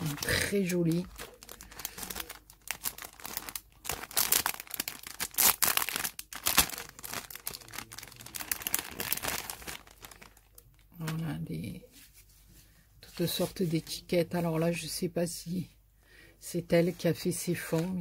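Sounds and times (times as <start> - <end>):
cellophane bag crinkling: 0.0 - 10.9.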